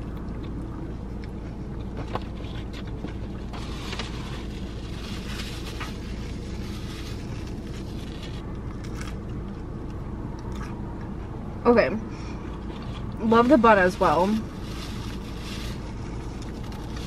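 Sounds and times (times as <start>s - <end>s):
person chewing: 0.0s - 3.6s, 8.4s - 11.1s.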